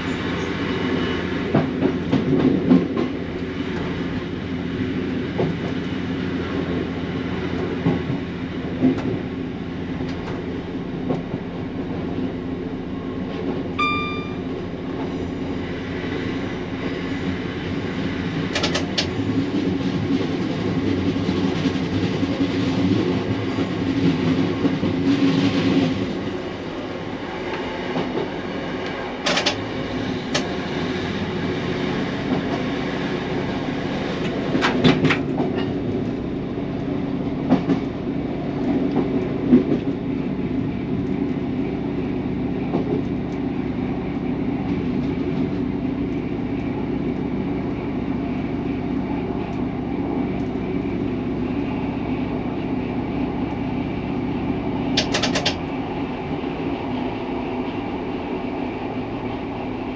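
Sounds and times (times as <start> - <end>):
train diesel engine drone: 0.0 - 59.9
wheels clacking over rail joints: 54.9 - 55.8.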